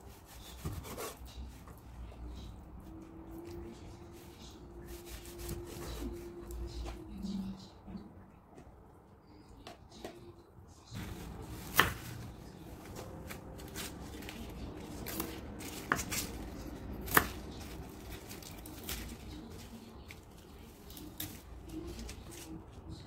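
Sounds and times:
knife chopping on wooden board: 0.5s - 1.2s, 11.0s - 12.2s, 15.0s - 16.4s, 17.0s - 17.7s.

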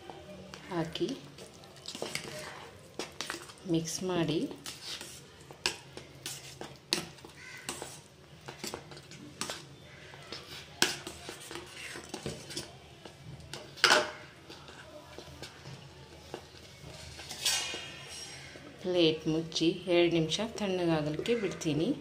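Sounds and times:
spoon scraping and clinking in pot: 17.0s - 18.6s.

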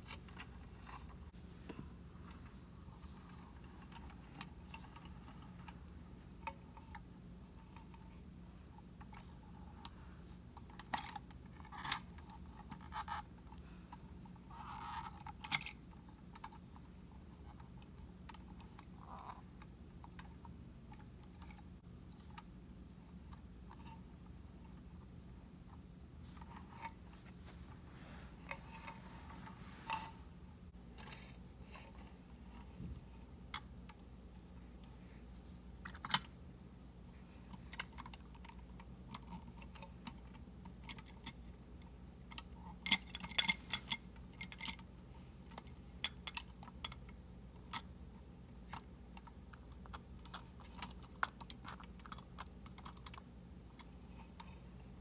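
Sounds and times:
faint steady hum: 0.0s - 55.0s
toy plastic clicks and clatters: 48.6s - 54.6s.

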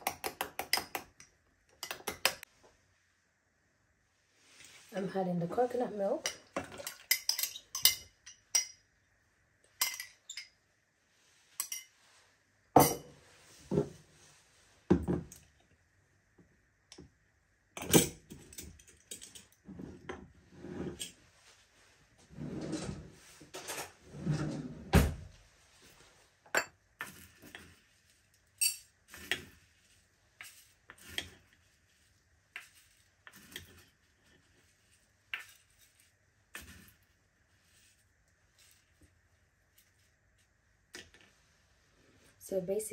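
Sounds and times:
metal spoon clinking and scraping: 1.8s - 2.4s, 6.2s - 8.8s, 9.8s - 10.6s, 11.6s - 11.9s, 17.8s - 19.6s, 26.6s - 39.1s
metal spoon clinking against glass: 6.8s - 8.8s, 9.8s - 10.5s, 28.6s - 28.9s.

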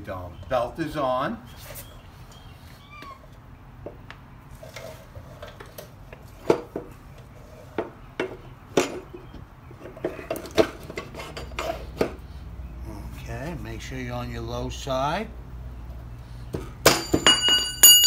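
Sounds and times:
metal axle clinking and knocking: 16.6s - 18.0s.

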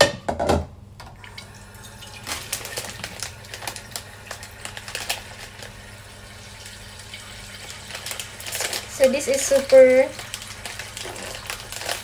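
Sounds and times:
plastic packet crinkling: 1.9s - 6.0s, 7.4s - 12.0s.

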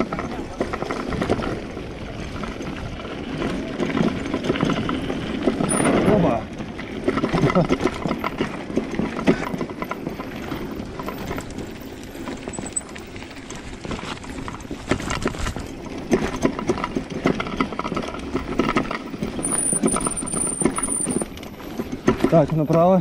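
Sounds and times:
bicycle chain and frame clattering: 0.0s - 23.0s
bicycle tyres crunching over gravel: 0.0s - 23.0s.

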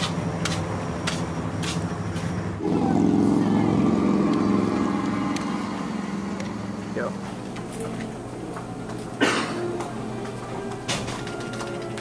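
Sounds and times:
footsteps on concrete: 0.0s - 2.4s, 7.2s - 10.8s
vehicle engine running: 0.0s - 10.4s.

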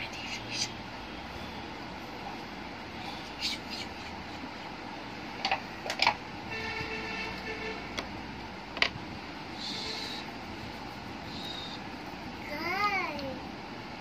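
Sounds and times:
steady background hum: 0.0s - 14.0s
distant horn-like tone: 6.5s - 8.0s.

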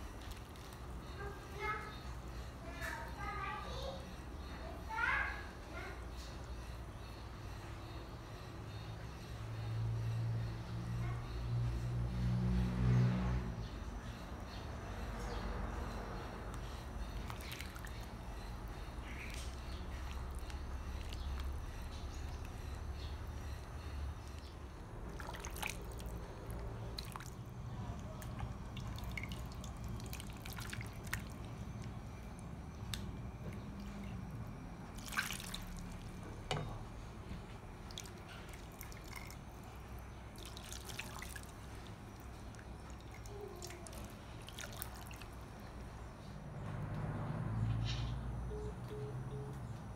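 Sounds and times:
low steady hum: 0.0s - 49.9s
liquid dripping and splashing: 17.2s - 18.1s, 19.0s - 22.6s, 24.2s - 36.6s, 37.8s - 45.4s.

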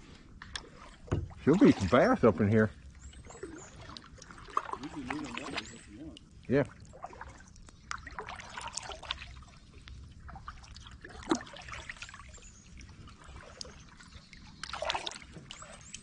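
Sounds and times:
paddle dipping into water: 0.0s - 16.0s
water trickling off paddle: 0.0s - 16.0s
loud paddle splashes: 0.7s - 2.1s, 14.6s - 15.6s.

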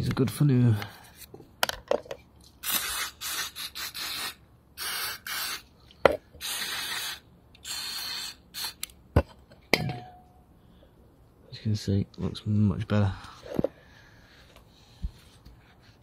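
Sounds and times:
aerosol spray hissing bursts: 2.6s - 5.7s, 6.4s - 8.8s.

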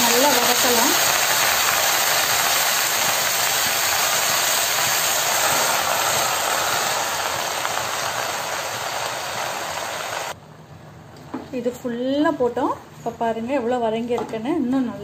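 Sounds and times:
leaves sizzling in hot oil: 0.0s - 10.4s.

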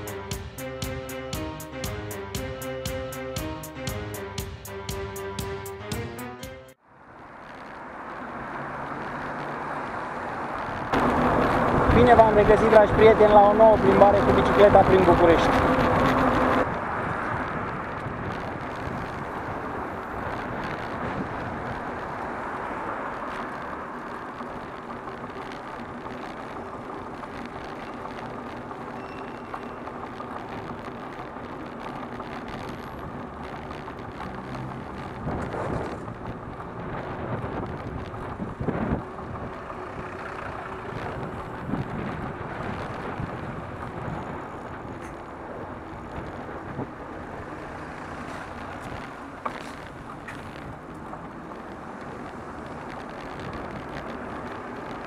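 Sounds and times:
street traffic: 0.0s - 55.0s.

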